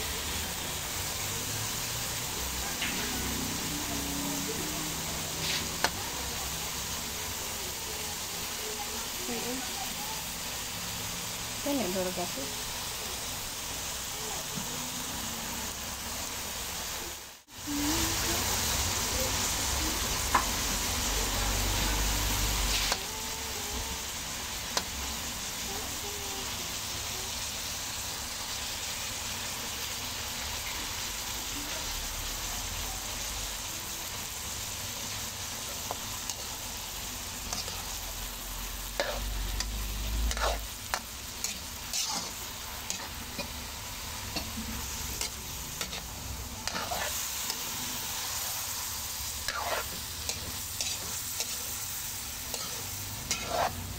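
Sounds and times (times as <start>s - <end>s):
food sizzling in hot oil: 0.0s - 53.9s
metal spatula scraping pan: 39.0s - 43.7s, 44.3s - 47.6s, 49.4s - 51.7s, 52.4s - 53.9s.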